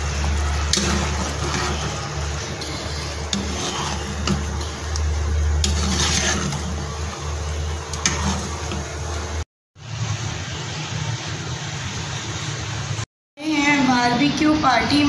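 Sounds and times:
ladle scraping pot: 0.0 - 9.4
ladle stirring curry: 0.0 - 9.4.

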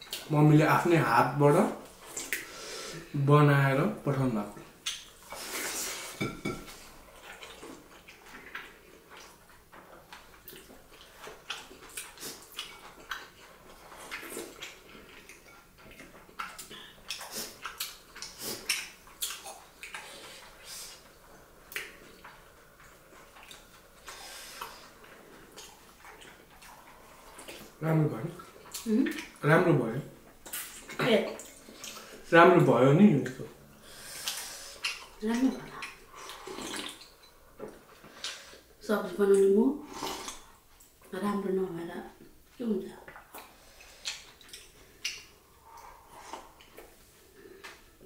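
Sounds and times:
ceramic dishes clinking: 6.2 - 6.7
slurping soup: 35.9 - 37.2, 39.8 - 40.6.

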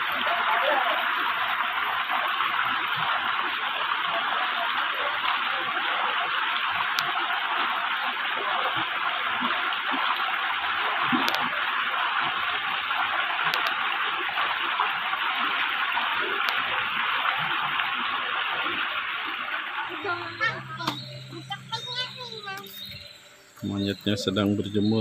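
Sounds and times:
stream rushing over rocks: 0.0 - 25.0
faint clicks: 13.5 - 13.8.

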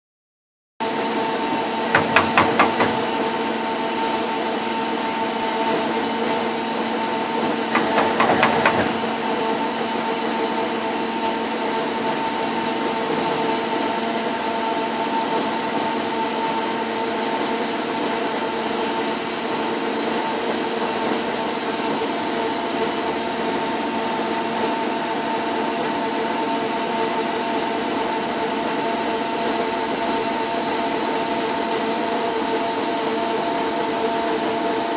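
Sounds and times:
lathe humming: 1.9 - 9.5
rapid rattling clicks: 2.0 - 3.5, 7.7 - 9.3.

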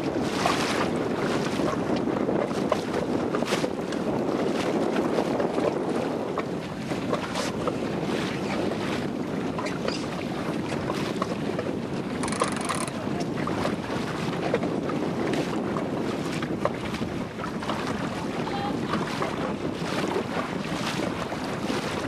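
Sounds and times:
water splashing against hull: 0.0 - 22.0
wind buffeting microphone: 0.0 - 22.0.

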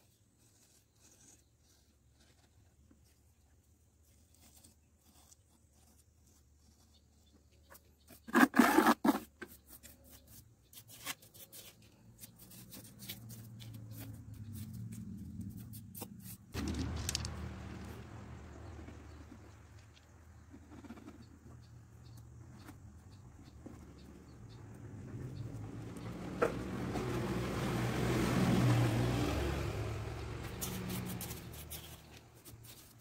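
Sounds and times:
small stones rustling scrape: 16.5 - 20.1.

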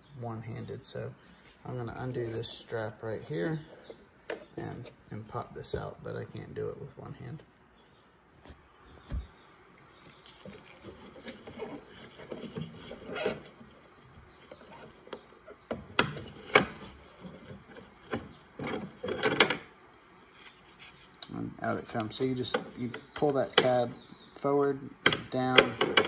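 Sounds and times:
plastic rubbing and scraping: 10.0 - 15.1
sharp knocks and clicks: 25.0 - 26.0.

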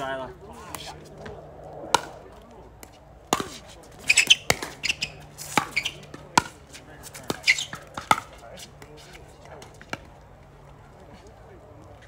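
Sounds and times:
paddles hitting plastic ball: 2.8 - 8.9.

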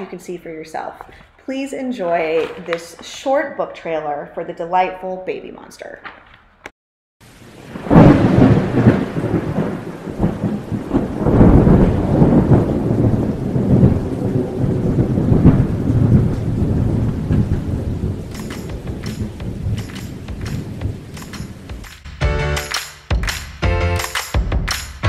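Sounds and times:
steady rain: 7.2 - 22.0
rolling thunder: 7.3 - 21.8.

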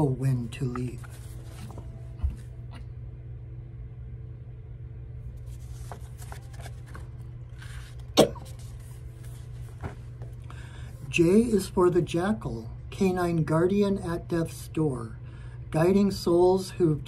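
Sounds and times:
low electrical hum: 0.0 - 17.0
pages rustling and turning: 0.3 - 2.6, 5.3 - 10.4.

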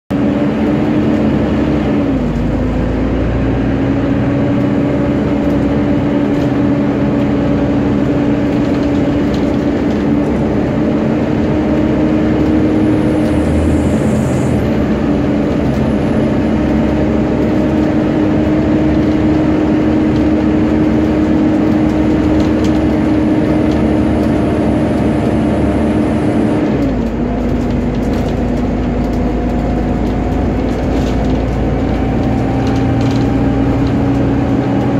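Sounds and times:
bus engine rumble: 0.1 - 34.9
cooling fan whine: 7.8 - 34.9.

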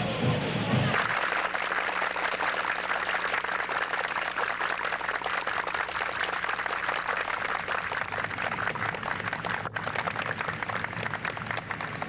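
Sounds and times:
dense crackling noise: 1.0 - 12.0
low hum: 2.6 - 12.0.

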